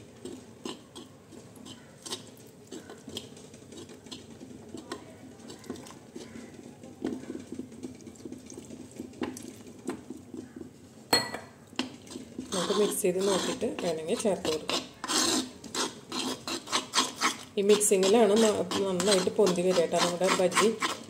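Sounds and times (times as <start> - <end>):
batter stirred by hand: 0.0 - 21.0
metal tumbler tapping bowl: 11.1 - 11.5.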